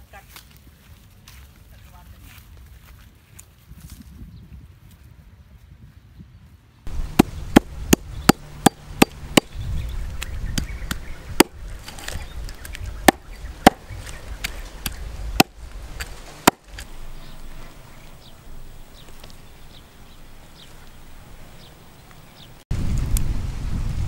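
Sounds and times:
knife chopping on wooden block: 0:16.4 - 0:16.6.

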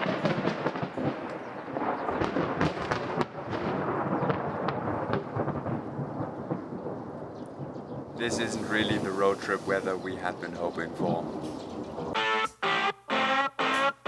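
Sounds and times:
rain pouring: 0:08.2 - 0:11.3.

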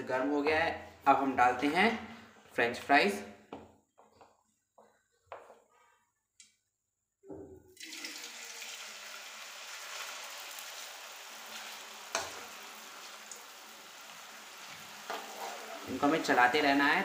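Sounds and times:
potato sticks sizzling in oil: 0:07.8 - 0:17.0
metal spoon stirring: 0:15.1 - 0:16.2.

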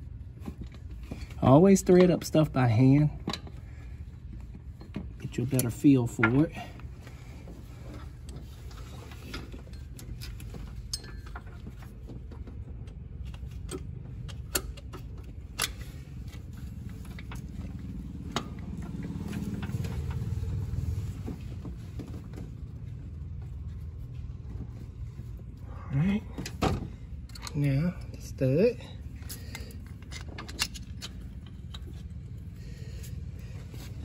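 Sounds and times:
low steady hum: 0:00.0 - 0:34.0
metallic clicks of wrench on bolts: 0:27.3 - 0:27.7.

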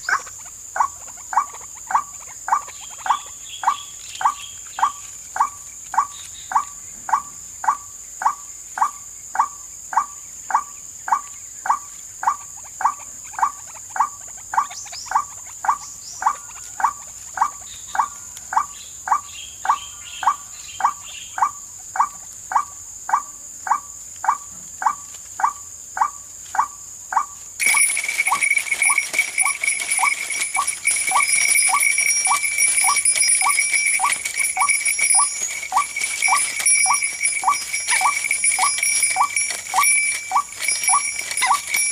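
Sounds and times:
bird wak calls: 0:26.0 - 0:41.9.

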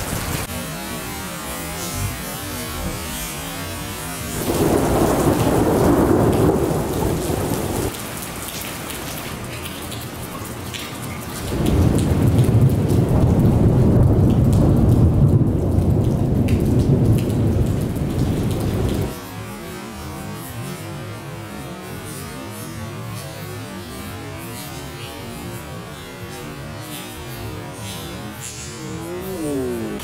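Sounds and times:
thunder rumbling: 0:00.0 - 0:08.2, 0:11.5 - 0:19.2
steady rain: 0:00.0 - 0:30.0.

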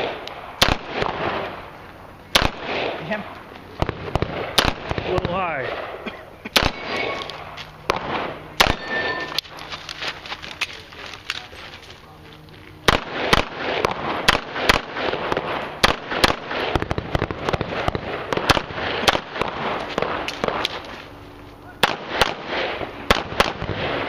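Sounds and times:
pistol shots with echo: 0:00.0 - 0:01.6, 0:02.3 - 0:03.2, 0:03.8 - 0:09.5, 0:12.8 - 0:20.8, 0:21.8 - 0:24.0.

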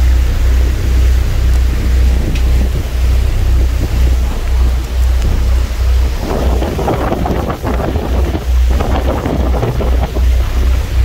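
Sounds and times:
boat engine low rumble: 0:00.0 - 0:11.0
churning wake rushing: 0:00.0 - 0:11.0
wind buffeting microphone: 0:00.0 - 0:11.0.

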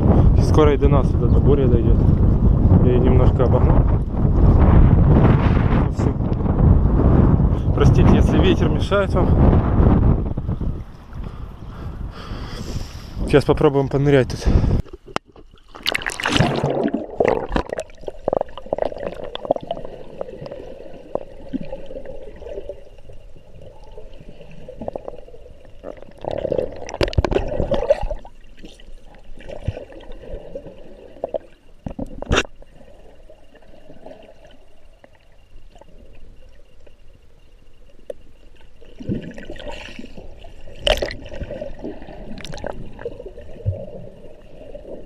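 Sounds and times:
water gurgling underwater: 0:14.8 - 0:36.7, 0:38.6 - 0:45.0.

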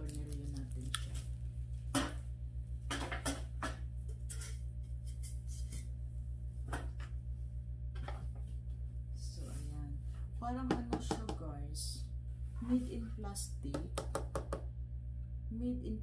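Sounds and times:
plastic wrap rustling: 0:00.0 - 0:01.9
low hum: 0:00.0 - 0:16.0.

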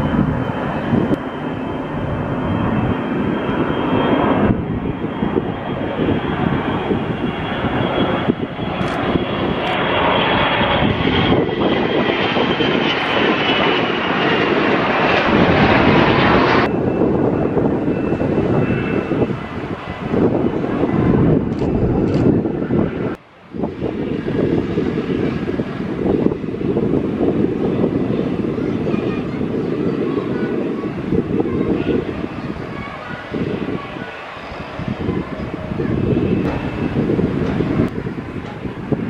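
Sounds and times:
jet engines at takeoff power: 0:00.0 - 0:39.0.

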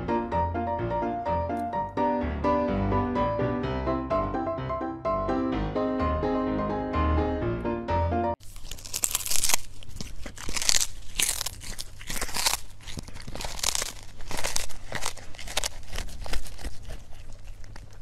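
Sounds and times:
piano music: 0:00.0 - 0:08.4
crunching and tearing: 0:08.4 - 0:18.0.

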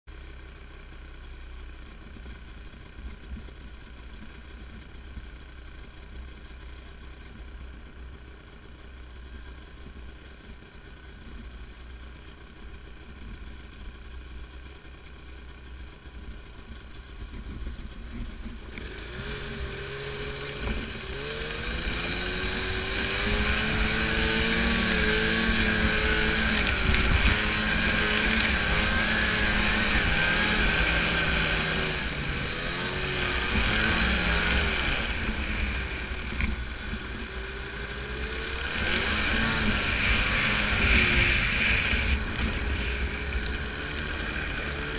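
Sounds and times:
snowmobile engine revving: 0:18.5 - 0:44.9.

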